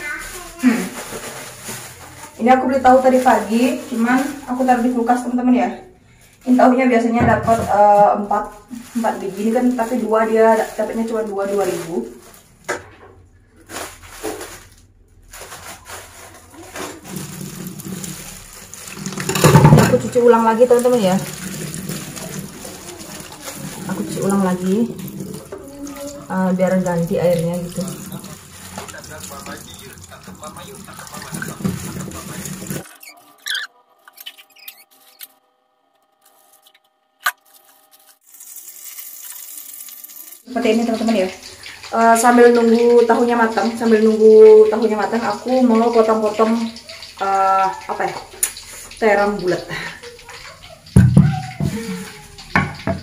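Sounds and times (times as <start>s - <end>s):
squeaks and rustles handling tofu: 0.0s - 5.1s, 13.6s - 19.1s, 21.1s - 26.4s, 32.8s - 35.4s
plastic bag rustling: 0.0s - 12.7s, 13.4s - 35.4s, 36.0s - 43.8s
tap water running into sink: 16.1s - 32.8s, 38.3s - 53.0s
tap running into steel sink: 50.9s - 53.0s.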